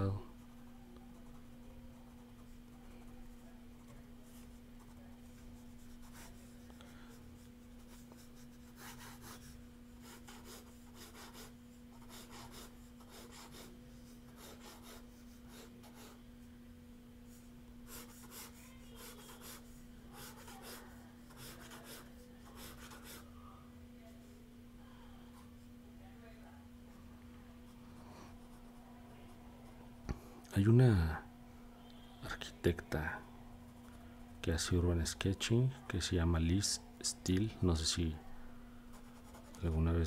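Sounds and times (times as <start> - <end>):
faint steady hum: 0.0 - 40.0
pen scratching on paper: 7.8 - 13.7, 14.3 - 16.2, 17.9 - 23.3, 38.9 - 39.7.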